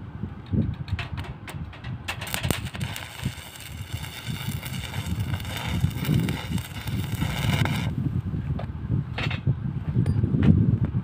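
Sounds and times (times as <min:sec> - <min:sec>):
wind buffeting microphone: 0:00.0 - 0:11.0
welding arc crackling: 0:02.1 - 0:08.0.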